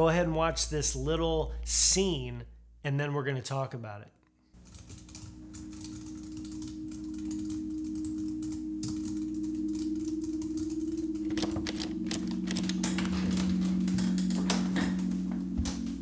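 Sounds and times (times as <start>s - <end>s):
low steady drone: 5.7s - 16.0s.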